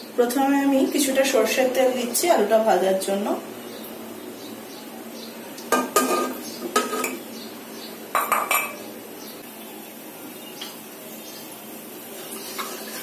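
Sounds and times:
cup knocking against a pan: 5.7 - 7.2, 8.1 - 8.8.

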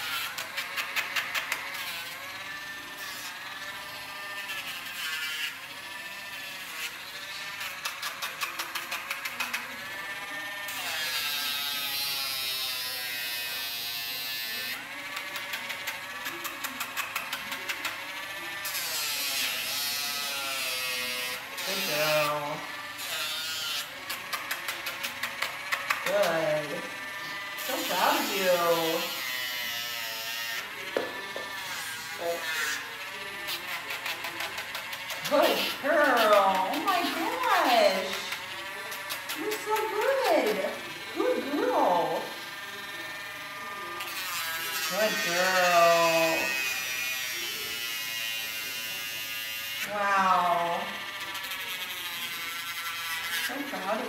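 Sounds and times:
nail grinder whirring: 0.0 - 54.0.

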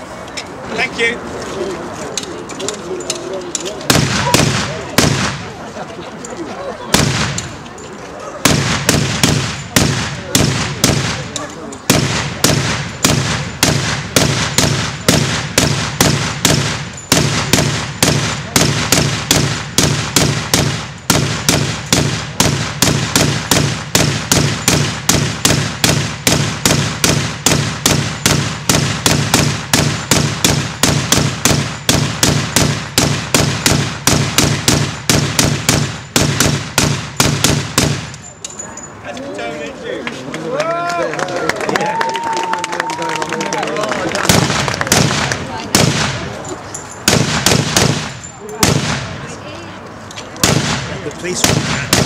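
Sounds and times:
gatling gun firing rapid shots: 3.9 - 5.4, 6.9 - 7.4, 8.4 - 11.3, 11.9 - 38.1, 47.1 - 49.0, 50.4 - 52.0.

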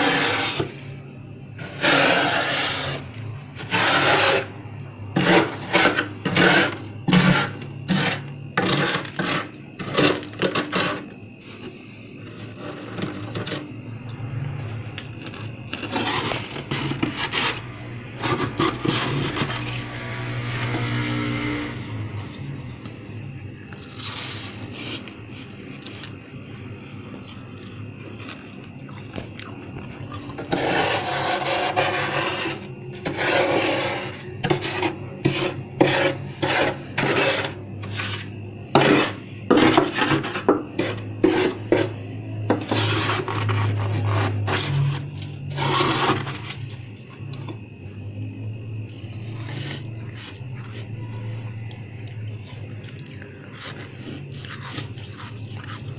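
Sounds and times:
spatula scraping frost: 0.0 - 0.9, 1.6 - 11.6, 15.3 - 17.6, 18.2 - 20.7, 30.4 - 46.6.

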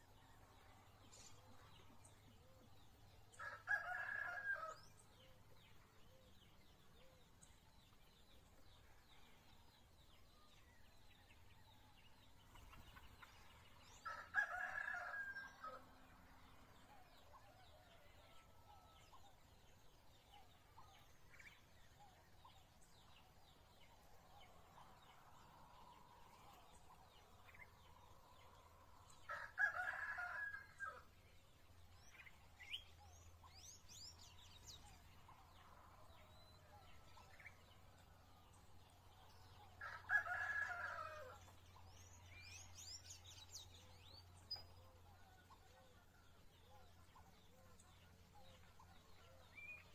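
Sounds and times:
rooster crowing: 39.8 - 41.3.

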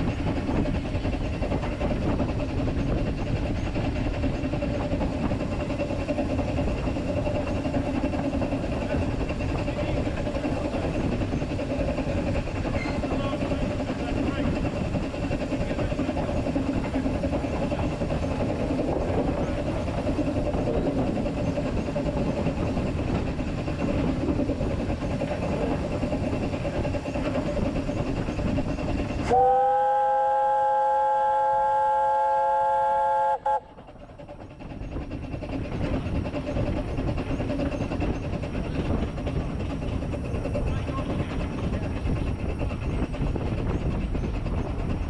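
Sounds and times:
steam locomotive running: 0.0 - 45.0
loud steam whistle: 29.3 - 33.7.

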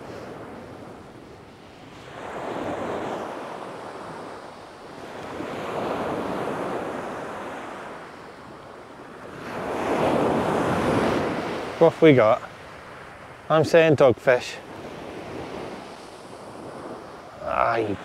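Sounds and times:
waves breaking on shingle beach: 9.2 - 18.0.

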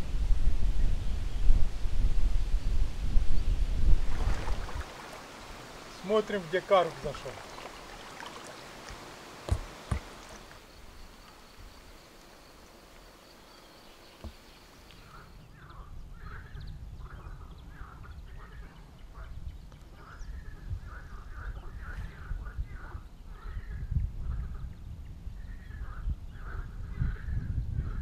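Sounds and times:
wind rumbling on microphone: 0.0 - 6.0, 14.2 - 28.0
sharp knocks: 9.4 - 10.1.

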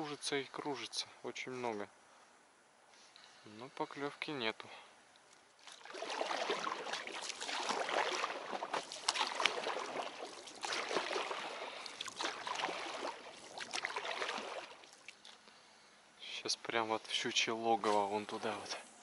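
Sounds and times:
water dripping: 5.1 - 15.6
water splashing from rowing: 5.6 - 15.4.

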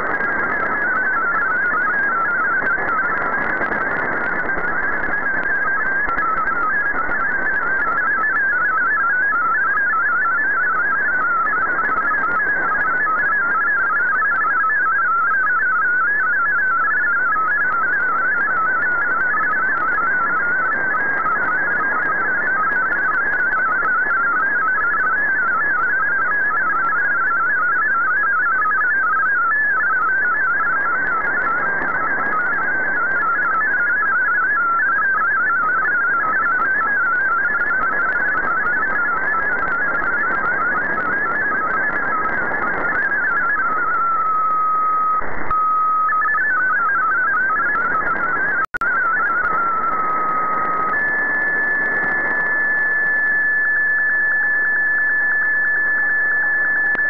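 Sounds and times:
radio static: 0.0 - 8.3, 28.6 - 57.0
steady radio tone: 0.0 - 57.0
warbling digital data tones: 0.0 - 57.0.

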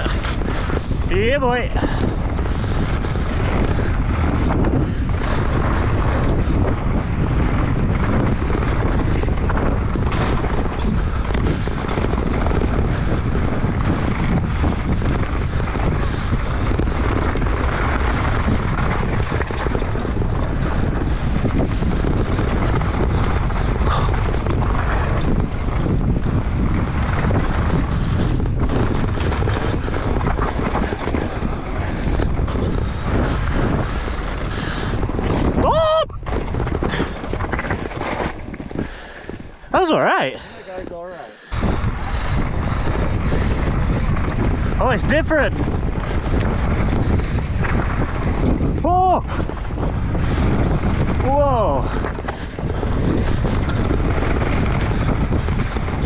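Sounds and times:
bike knocks and rattles: 0.0 - 39.6
bike tyre rumble: 0.0 - 56.0
wind buffeting microphone: 0.0 - 56.0.

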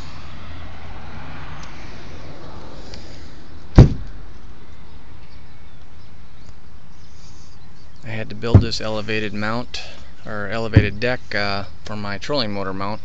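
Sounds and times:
hatch lid thumping shut: 3.8 - 4.1, 8.5 - 8.8.

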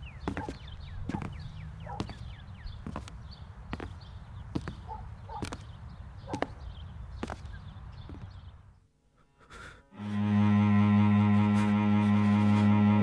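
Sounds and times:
bird chirps: 0.0 - 8.8.

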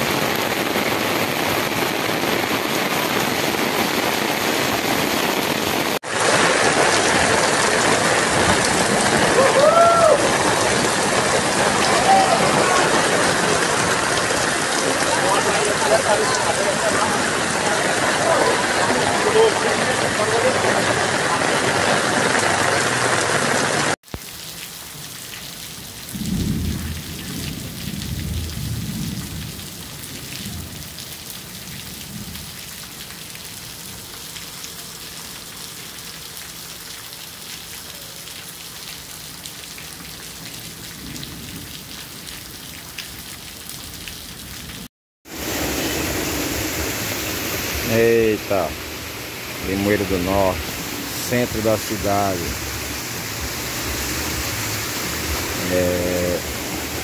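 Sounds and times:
heavy rain pouring: 0.0 - 57.0
low rumble of thunder: 26.1 - 32.6.

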